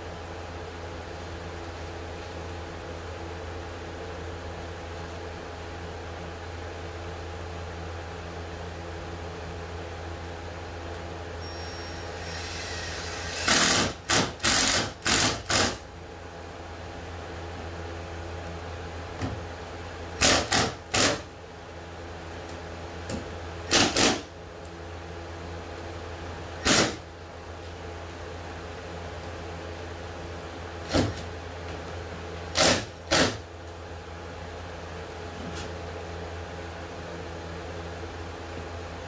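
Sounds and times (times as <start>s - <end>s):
cordless drill driving screws: 12.2s - 15.8s.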